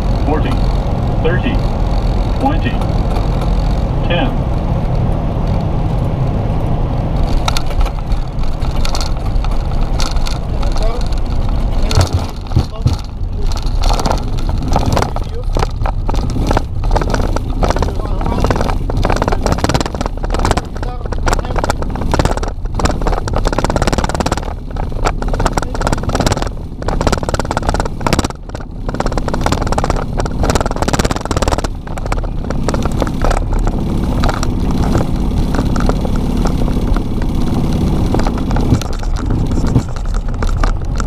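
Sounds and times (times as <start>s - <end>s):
jet engine and airflow rush: 0.0s - 28.0s.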